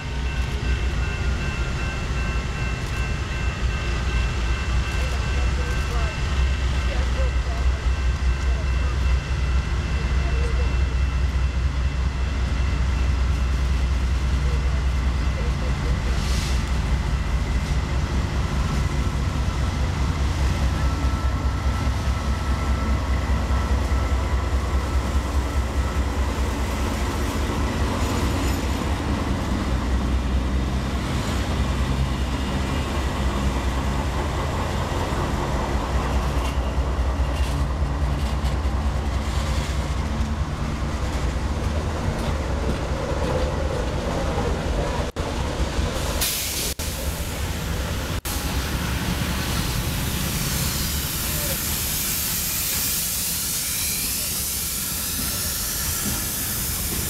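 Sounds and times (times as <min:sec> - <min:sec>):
diesel locomotive engines rumbling: 0:00.0 - 0:57.0
train wheels clicking on rails: 0:12.4 - 0:44.1, 0:48.1 - 0:57.0.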